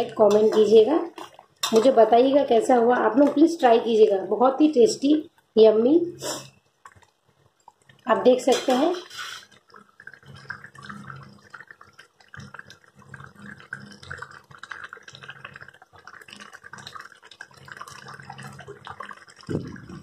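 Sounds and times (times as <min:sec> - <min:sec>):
gravy bubbling in a pot: 0:00.0 - 0:20.0
low steady hum: 0:17.6 - 0:20.0.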